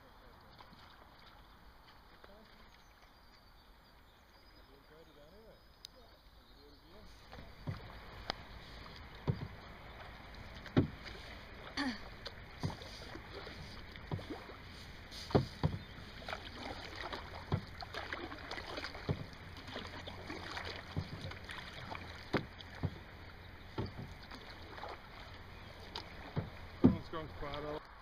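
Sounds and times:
paddle strokes in water: 0:00.0 - 0:04.1, 0:06.9 - 0:27.9
paddles knocking on canoe: 0:07.2 - 0:27.8.

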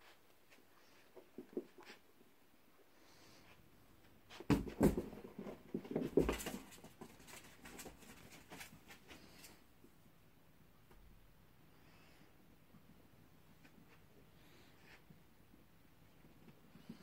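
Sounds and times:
animals scuffling on carpet: 0:05.4 - 0:09.6.

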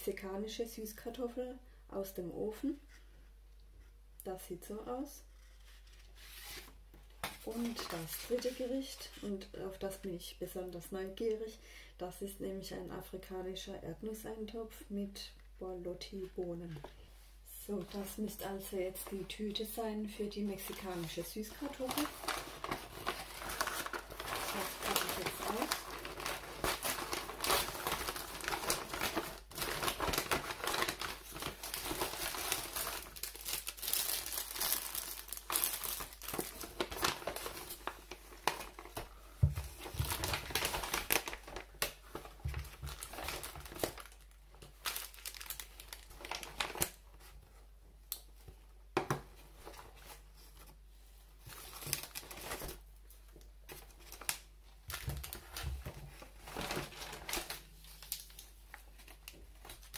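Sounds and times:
paper bag rustling and crinkling: 0:20.5 - 0:47.5, 0:49.4 - 0:59.9.

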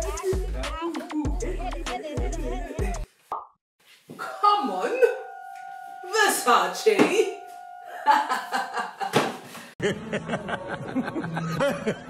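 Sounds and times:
low hum: 0:04.8 - 0:09.1
woman laughing: 0:07.9 - 0:12.0
man laughing: 0:08.0 - 0:09.2.

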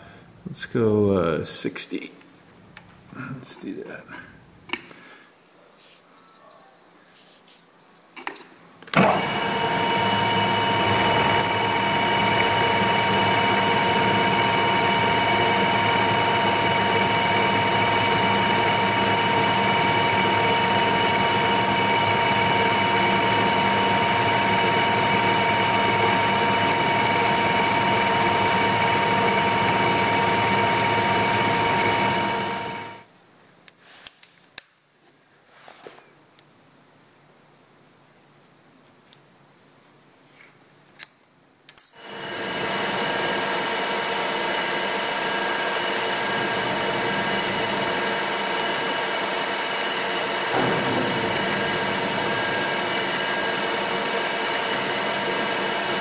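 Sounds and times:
milling machine whining: 0:08.9 - 0:33.0, 0:42.0 - 0:56.0.

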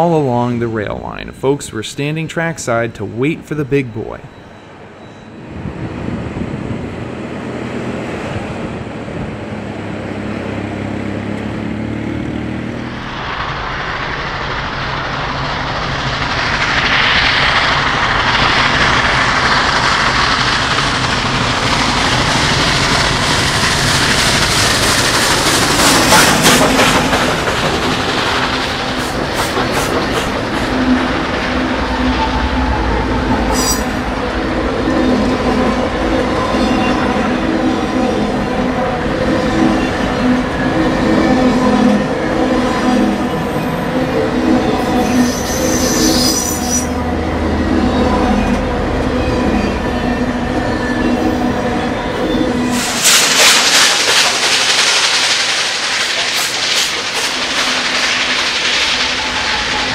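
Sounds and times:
steam locomotives passing: 0:00.0 - 0:59.9
high wheel squeal: 0:03.0 - 0:05.6, 0:31.8 - 0:35.3, 0:36.2 - 0:38.6, 0:39.4 - 0:53.3, 0:58.7 - 0:59.9
wheels clicking over rails: 0:14.9 - 0:32.5, 0:52.7 - 0:59.9.

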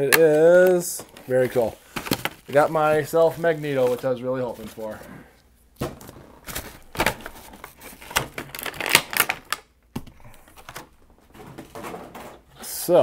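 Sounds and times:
plastic wrappers rustling: 0:00.0 - 0:05.2, 0:05.9 - 0:09.6.

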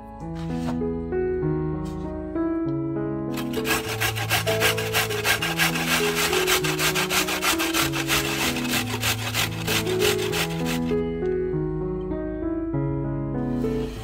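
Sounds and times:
carrot rasping on metal grater: 0:03.3 - 0:11.0.

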